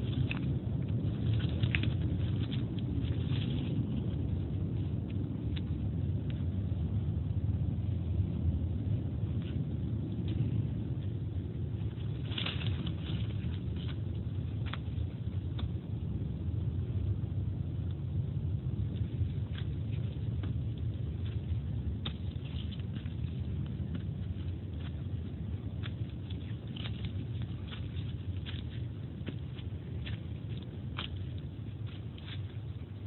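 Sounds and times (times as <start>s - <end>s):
leaves and twigs crackling: 0.0s - 8.2s, 8.8s - 33.0s
low microphone rumble: 0.0s - 33.0s
footsteps on dry leaves: 19.7s - 33.0s.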